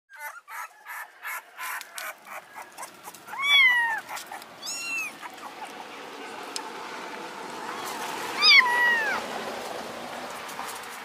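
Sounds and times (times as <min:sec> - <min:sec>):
kitten meowing: 0:03.3 - 0:05.4, 0:08.4 - 0:09.2.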